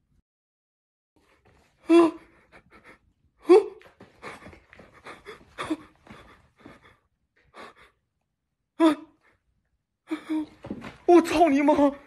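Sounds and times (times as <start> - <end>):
man breathing hard: 4.0 - 8.0.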